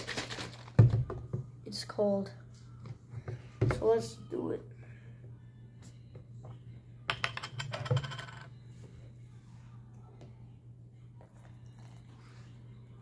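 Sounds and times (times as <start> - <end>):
juice trickling into cup: 11.2 - 12.1.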